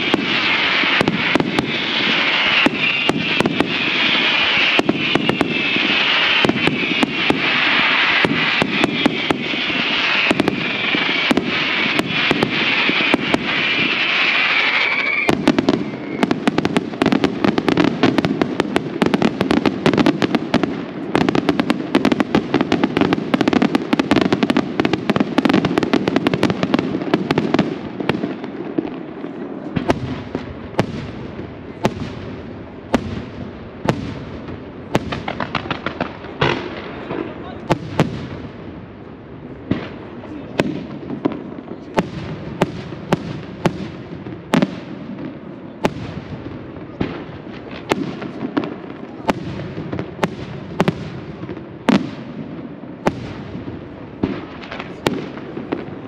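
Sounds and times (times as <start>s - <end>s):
high hissing whistle: 0.0s - 16.4s
fireworks bangs: 0.0s - 56.0s
fireworks crackle: 0.0s - 56.0s.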